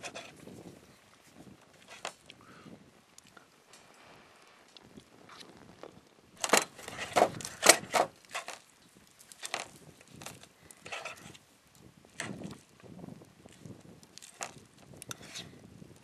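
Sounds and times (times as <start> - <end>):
plastic fork scraping a pan: 0.0 - 0.4, 1.8 - 2.2, 6.4 - 8.6, 9.4 - 11.4, 14.2 - 15.6.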